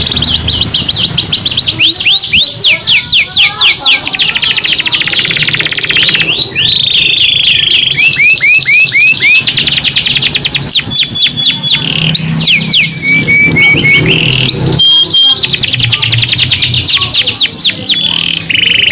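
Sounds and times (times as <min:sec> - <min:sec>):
canaries singing: 0:00.0 - 0:18.9.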